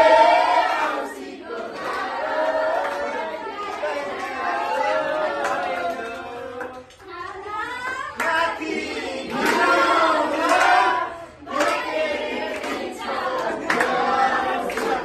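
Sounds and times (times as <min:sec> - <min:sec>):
group singing folk song: 0:00.0 - 0:06.9, 0:07.9 - 0:15.0
hand claps: 0:05.4 - 0:08.4, 0:09.4 - 0:10.9, 0:11.5 - 0:15.0.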